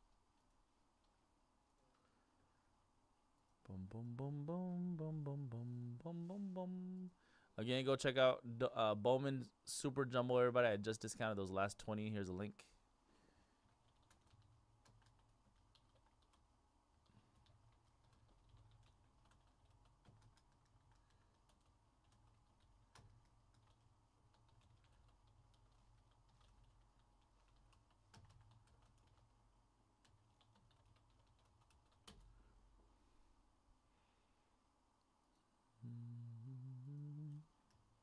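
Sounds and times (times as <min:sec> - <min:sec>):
low hum: 0:00.0 - 0:07.4, 0:32.4 - 0:38.0.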